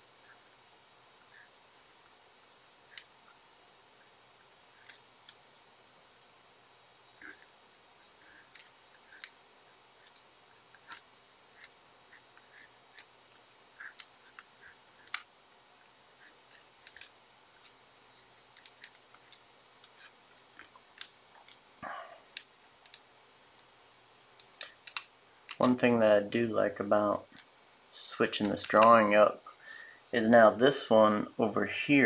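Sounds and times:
pencil scratching on paper: 13.8 - 15.1.

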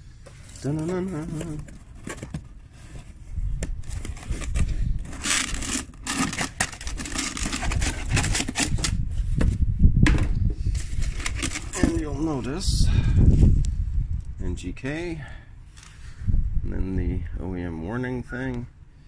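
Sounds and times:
packaging scraping and crinkling: 0.2 - 9.6, 10.6 - 12.1.

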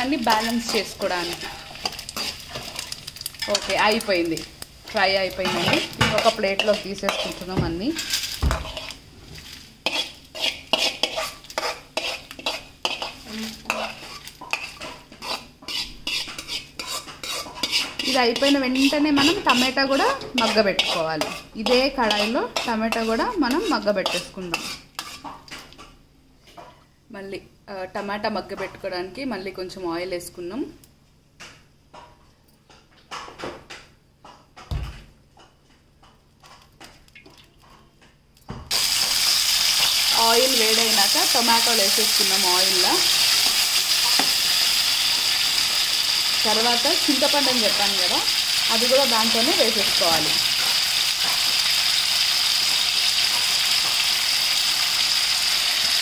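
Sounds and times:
metal spatula scraping pan: 0.2 - 3.9, 5.3 - 25.4.

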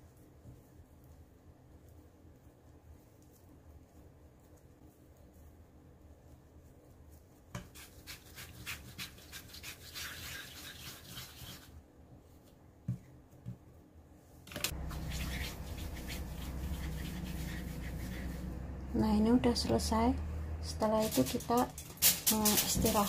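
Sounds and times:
hands rolling dough: 0.0 - 14.0, 14.6 - 19.8, 20.7 - 23.0
steady low hum: 11.8 - 23.0.

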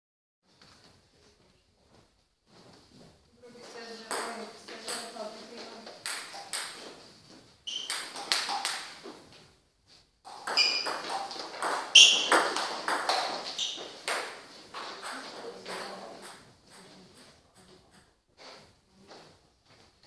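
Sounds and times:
table tennis ball pings: 7.7 - 9.0, 10.3 - 16.9.

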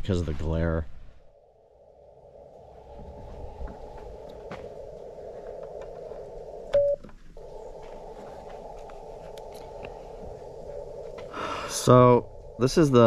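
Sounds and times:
radio receiver hiss: 2.3 - 13.0
morse sidetone beep: 6.7 - 7.0.

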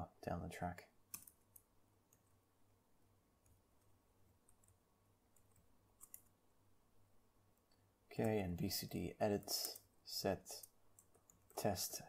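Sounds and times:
laptop keyboard keystrokes: 5.4 - 6.3.

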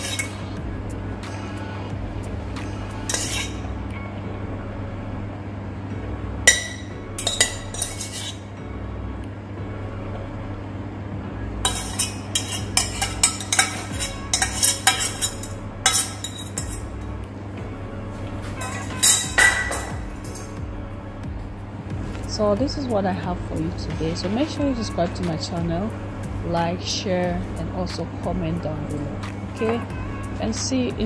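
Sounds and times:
metal spoon clinking on ceramic bowl: 0.0 - 0.4, 6.5 - 8.4, 11.7 - 16.9, 18.6 - 20.6
steady low hum: 0.0 - 31.0.

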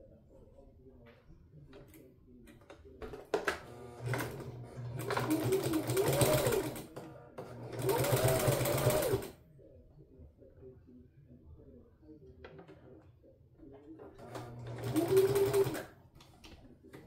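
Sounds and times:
electric sewing machine stitching: 3.6 - 9.3, 14.2 - 15.9.

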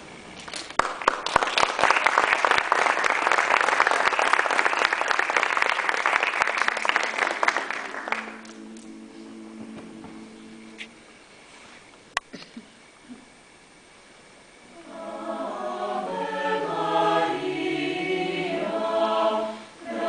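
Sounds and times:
audience applauding: 0.8 - 9.3
soft held notes: 7.5 - 12.2.

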